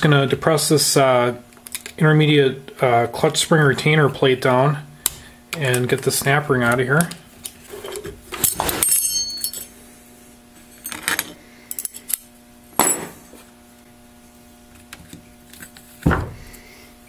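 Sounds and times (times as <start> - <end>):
steel parts clinking: 8.4 - 9.8.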